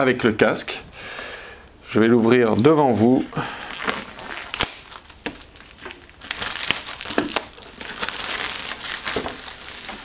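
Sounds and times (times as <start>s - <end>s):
plastic packaging crinkling: 3.4s - 10.0s.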